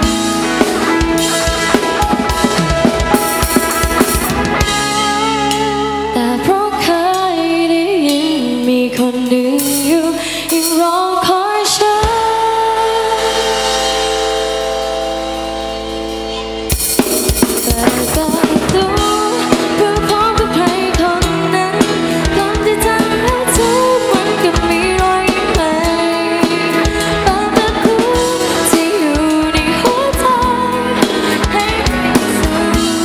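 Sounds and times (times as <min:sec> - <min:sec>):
drum kit beat: 0:00.0 - 0:06.6, 0:13.2 - 0:33.0
live pop band playing: 0:00.0 - 0:33.0
woman singing: 0:05.2 - 0:14.4, 0:17.5 - 0:33.0.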